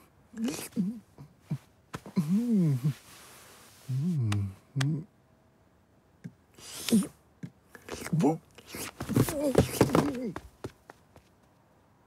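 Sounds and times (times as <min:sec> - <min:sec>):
man humming: 0:00.9 - 0:03.0, 0:03.9 - 0:05.1
breathy hiss: 0:06.5 - 0:07.2.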